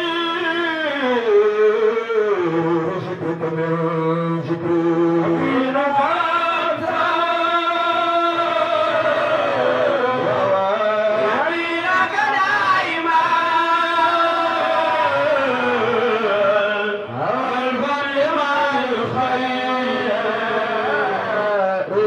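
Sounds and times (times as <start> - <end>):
man chanting into a microphone: 0.0 - 22.0.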